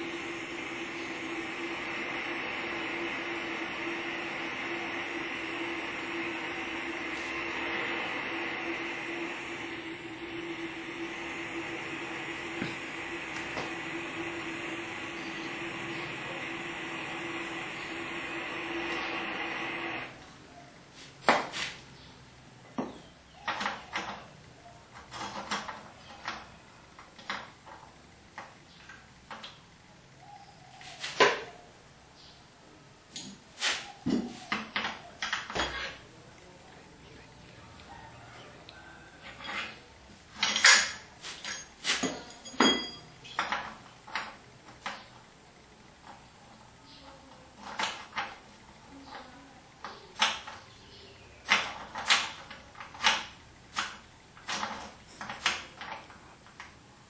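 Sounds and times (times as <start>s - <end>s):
metal cylinders clanking and scraping: 40.4s - 43.6s.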